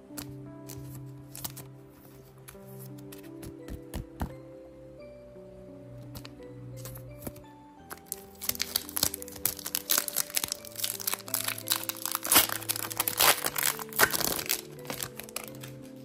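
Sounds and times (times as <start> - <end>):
soft background music: 0.0 - 16.0
foil wrapper crinkling: 7.9 - 16.0.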